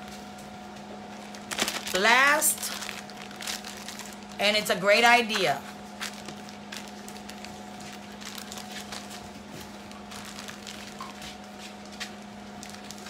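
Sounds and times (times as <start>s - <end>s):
steady low hum: 0.0s - 13.0s
plastic freezer bag crinkling: 1.0s - 13.0s.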